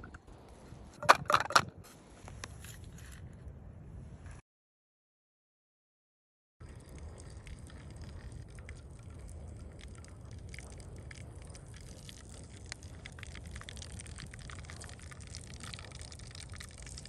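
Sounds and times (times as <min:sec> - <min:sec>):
hot liquid popping and crackling: 0:06.6 - 0:17.0
steady low rumble: 0:06.6 - 0:17.0.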